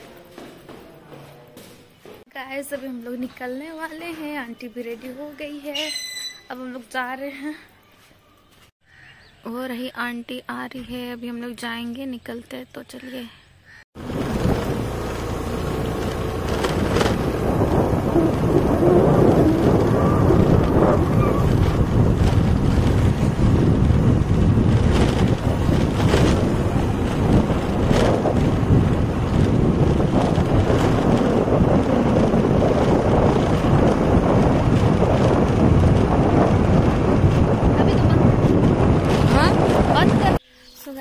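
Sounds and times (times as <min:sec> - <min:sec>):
rumble of riding vehicle: 0:14.0 - 0:40.4
wind buffeting microphone: 0:14.0 - 0:40.4.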